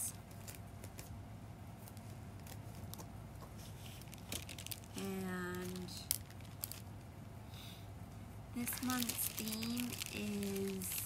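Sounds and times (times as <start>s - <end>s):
steady hum: 0.0s - 11.0s
plastic crinkling: 0.3s - 1.1s, 1.8s - 7.0s, 8.6s - 11.0s
scissors snipping plastic bag: 8.6s - 11.0s.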